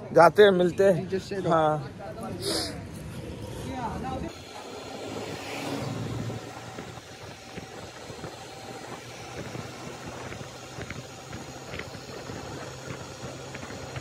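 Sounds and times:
motorcycle engine hum: 0.0 - 14.0
road noise: 0.0 - 14.0
wind noise: 2.3 - 14.0.

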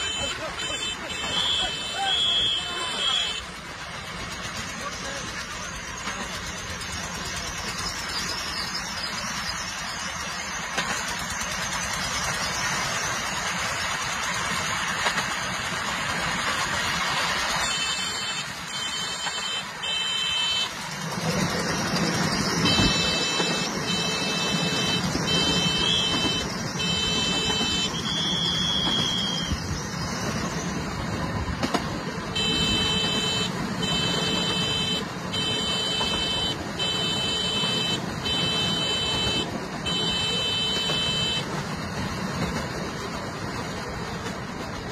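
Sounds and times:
train running on track: 0.0 - 44.9
high-pitched beeping: 22.4 - 29.6, 32.4 - 41.4.

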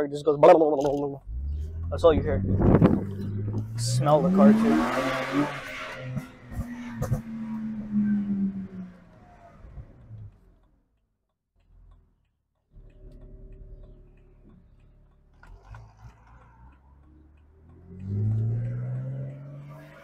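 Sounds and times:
car engine droning from cabin: 1.2 - 10.8, 12.8 - 20.0
faint ticks: 9.9 - 19.1.

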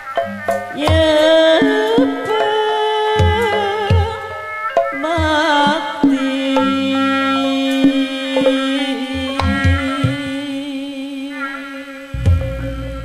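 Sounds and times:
gamelan: 0.0 - 13.0
hand drum strokes: 0.0 - 13.0
woman singing: 0.6 - 12.2
low drum thuds: 12.2 - 13.0.

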